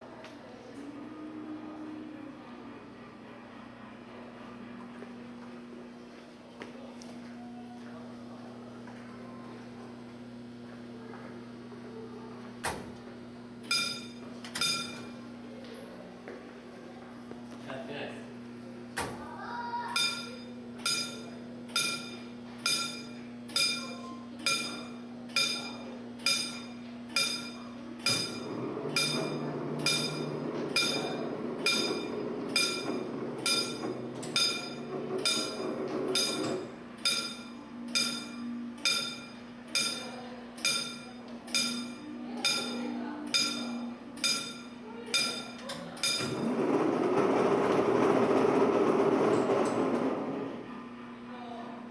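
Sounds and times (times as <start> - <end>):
level-crossing warning bell: 13.7 - 15.2, 20.0 - 47.5.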